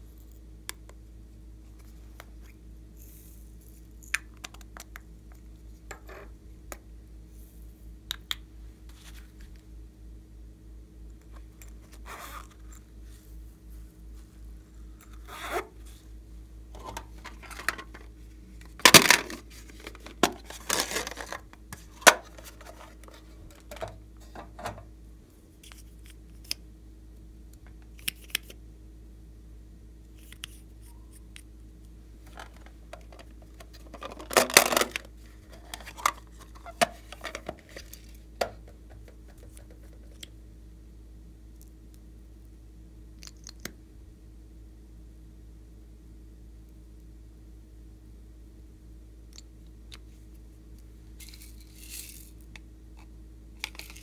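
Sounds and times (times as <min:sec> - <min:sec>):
plastic containers clicking and rustling: 0:16.8 - 0:24.9, 0:32.2 - 0:40.2.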